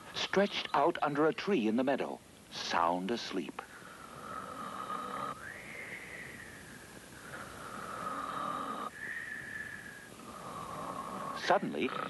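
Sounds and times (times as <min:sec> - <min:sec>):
cartoon snoring: 0:07.6 - 0:08.9, 0:10.2 - 0:12.0.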